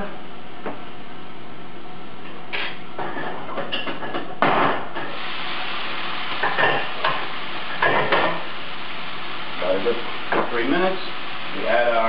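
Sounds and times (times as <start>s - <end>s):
vegetables sizzling in frying pan: 4.7s - 12.0s.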